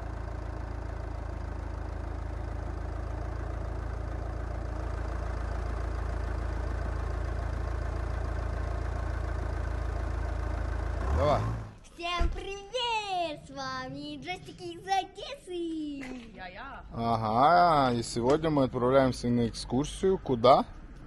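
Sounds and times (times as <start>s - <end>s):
engine idling rumble: 0.0s - 11.8s.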